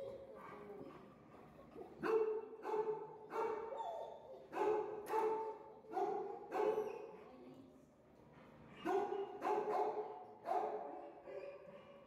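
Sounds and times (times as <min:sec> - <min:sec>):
dog barking: 0:02.0 - 0:06.9, 0:08.8 - 0:12.0.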